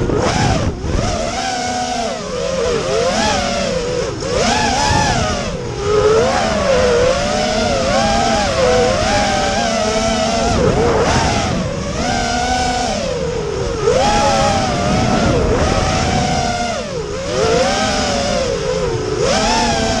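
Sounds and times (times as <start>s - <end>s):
quadcopter motors whining: 0.0s - 20.0s.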